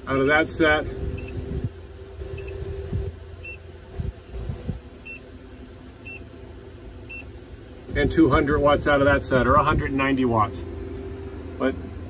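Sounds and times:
high-pitched electronic beeps: 0:00.0 - 0:00.4, 0:01.1 - 0:01.4, 0:02.3 - 0:02.7
steady low hum: 0:00.0 - 0:12.0.

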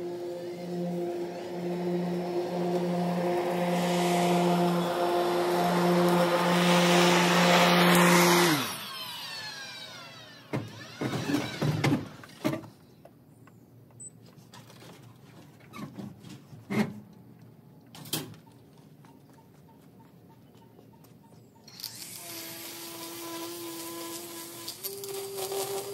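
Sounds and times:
electric mower motor whine: 0:00.0 - 0:12.4, 0:21.7 - 0:25.9.

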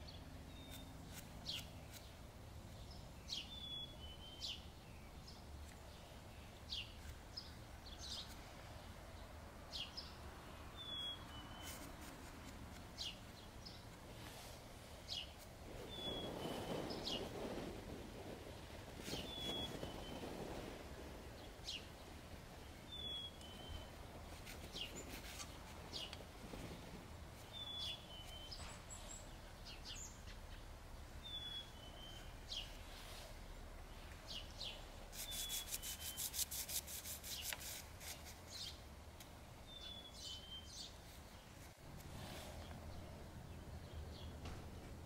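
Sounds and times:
pastel scratching on paper: 0:35.1 - 0:38.4.

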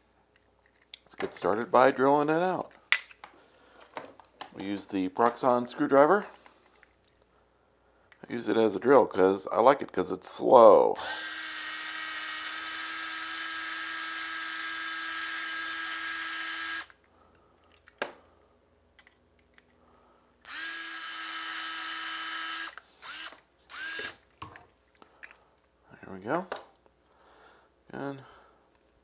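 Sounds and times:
electric screwdriver drilling: 0:11.0 - 0:17.0, 0:20.5 - 0:24.2.

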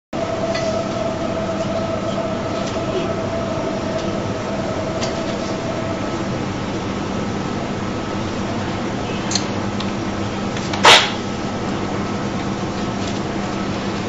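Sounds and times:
faint whine: 0:00.2 - 0:10.5
constant hum: 0:00.2 - 0:14.0.

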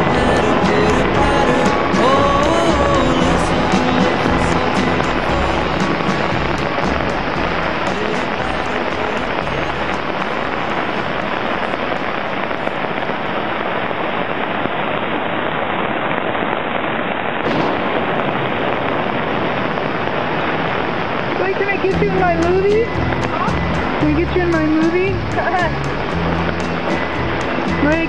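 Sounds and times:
heavy rain: 0:00.0 - 0:28.0
water rushing down concrete channel: 0:00.0 - 0:28.0.

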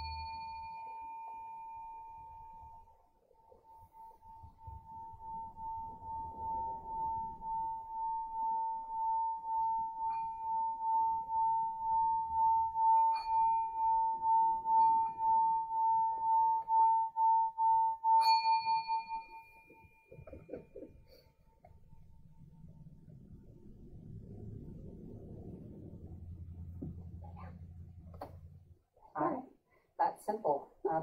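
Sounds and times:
singing bowl ringing: 0:00.0 - 0:23.2.

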